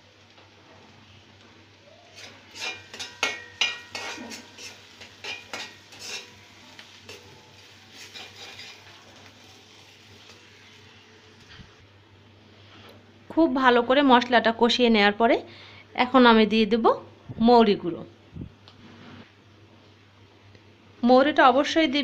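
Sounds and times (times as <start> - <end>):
faint frying: 0.0 - 16.8
spoon scraping a metal pan: 2.2 - 6.5, 7.9 - 9.0.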